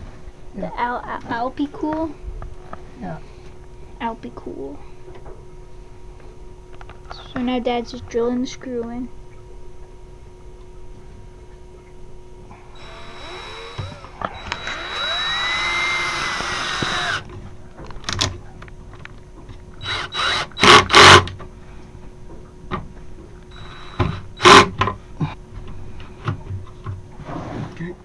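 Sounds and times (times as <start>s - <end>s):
cordless drill driving screw: 12.8s - 17.2s, 19.8s - 21.3s, 23.5s - 24.7s.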